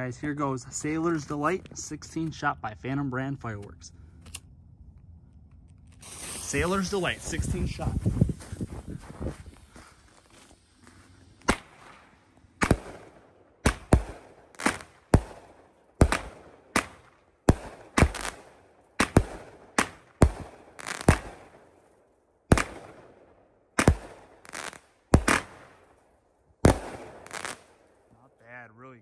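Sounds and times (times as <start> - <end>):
firework bangs: 6.0 - 21.6, 22.5 - 23.1, 23.8 - 25.8, 26.6 - 27.7.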